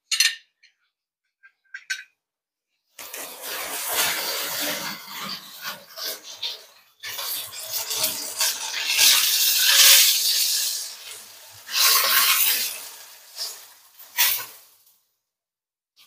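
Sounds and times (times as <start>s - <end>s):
metal spatula scraping pan: 3.0s - 14.6s
hot oil sizzling: 3.0s - 15.0s.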